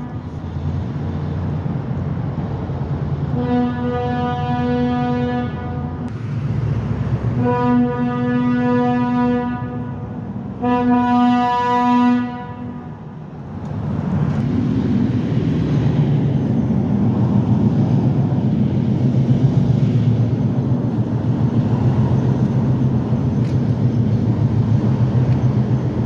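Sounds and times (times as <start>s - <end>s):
locomotive air horn blasts: 0.0s - 0.5s, 3.3s - 6.1s, 7.3s - 13.1s
diesel locomotive rumble: 0.0s - 26.0s.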